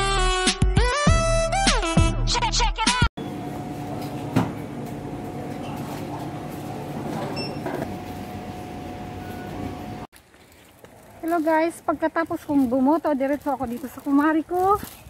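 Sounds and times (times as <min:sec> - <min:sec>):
bakery shop hum: 0:03.2 - 0:10.1.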